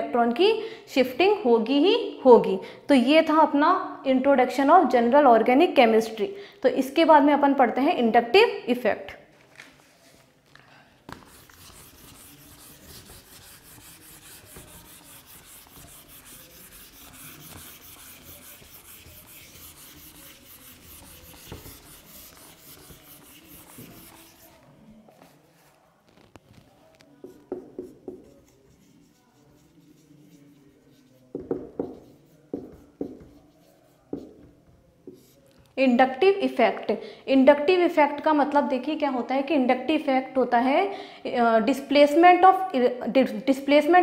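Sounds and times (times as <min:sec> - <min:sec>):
duster wiping whiteboard: 0:11.1 - 0:24.6, 0:27.2 - 0:34.4
marker writing on whiteboard: 0:11.1 - 0:35.5.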